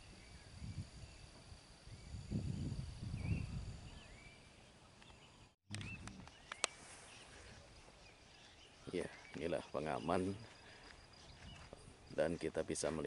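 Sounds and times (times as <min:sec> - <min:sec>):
birds chirping: 0:00.0 - 0:13.0.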